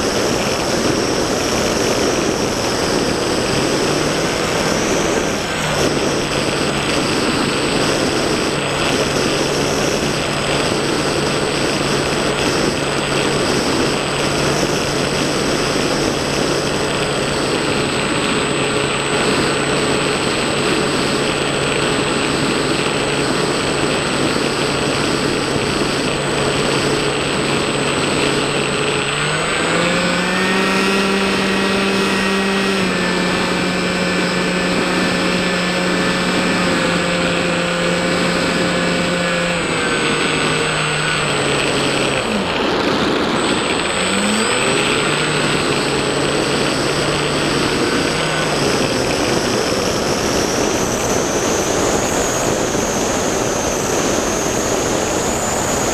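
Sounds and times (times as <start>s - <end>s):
model plane motor buzzing: 0.0s - 55.9s.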